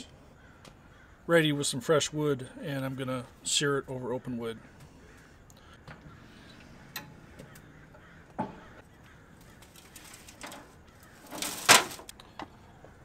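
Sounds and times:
foil pan clattering: 9.7 - 12.1.

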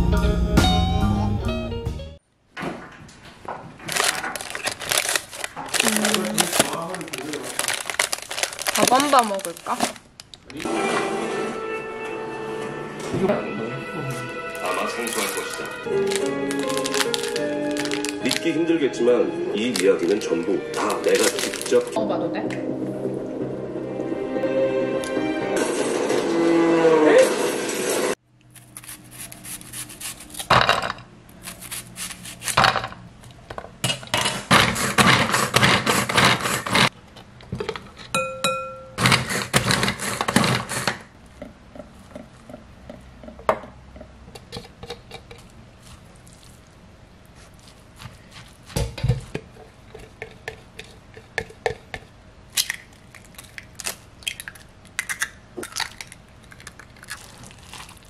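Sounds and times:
utensils clinking against bowls: 14.6 - 18.6
food chopper blades whirring: 34.3 - 36.9, 39.0 - 41.0.

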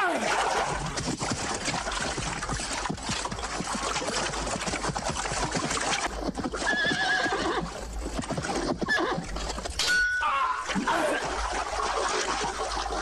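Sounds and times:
horse whinnying: 6.6 - 7.8, 8.5 - 11.2.

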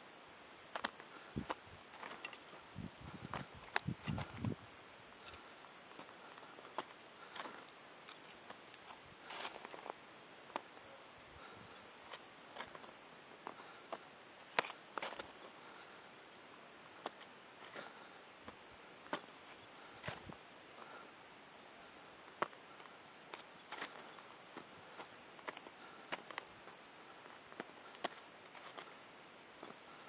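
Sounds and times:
steady hiss: 0.0 - 30.0
small crunches and clicks: 0.7 - 4.6, 12.1 - 15.5, 22.2 - 29.0.

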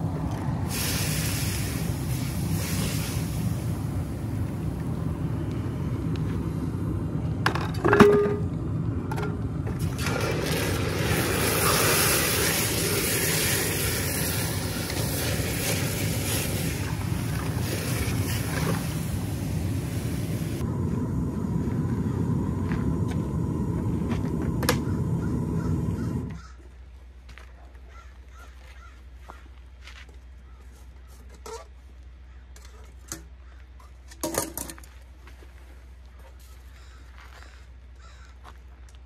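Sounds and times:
hot metal sizzling in water: 10.0 - 19.0.

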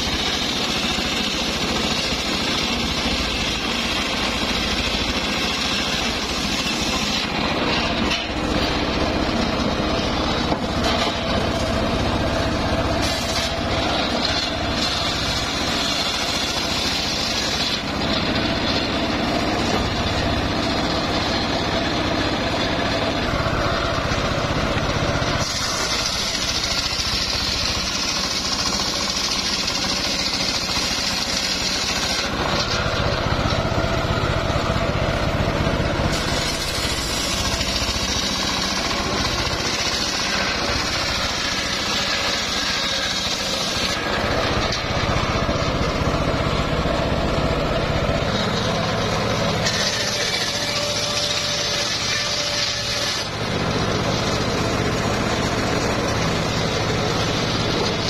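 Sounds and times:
circular saw cutting wood: 0.0 - 58.0.

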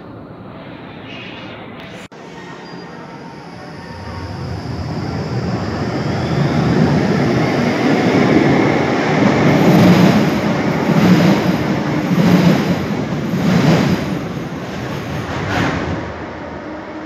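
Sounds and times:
tram wheels rumbling on rails: 3.7 - 17.0.

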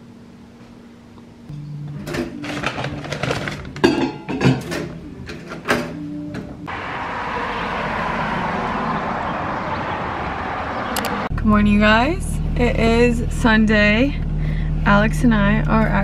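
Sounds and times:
road traffic rushing: 6.2 - 13.5.

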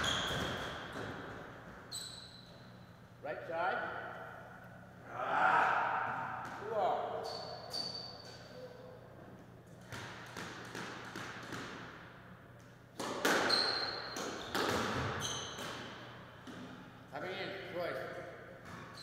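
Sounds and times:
squash ball hits echoing: 0.0 - 1.5, 5.8 - 7.2, 9.8 - 12.1, 12.9 - 16.8.

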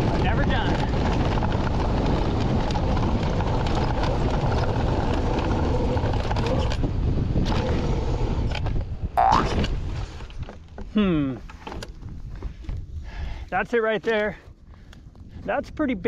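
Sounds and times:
wind on microphone: 0.0 - 10.4
bike tyre rumble on dirt: 0.0 - 16.0.

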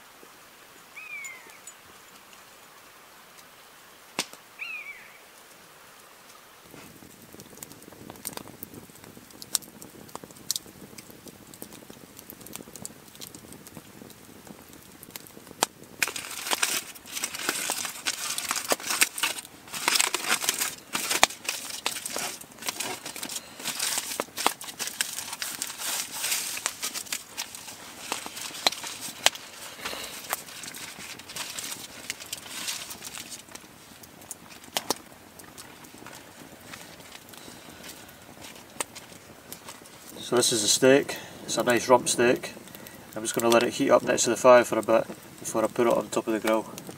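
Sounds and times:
foil and paper crinkling: 15.9 - 46.9.

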